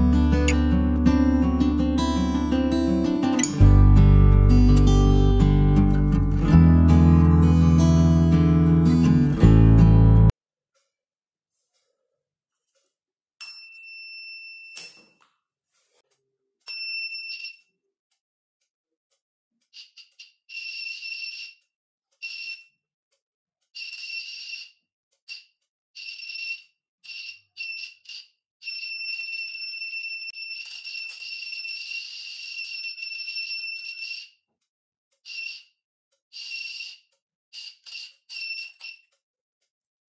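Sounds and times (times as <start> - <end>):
electronic buzzer beeping: 37.6 - 39.1.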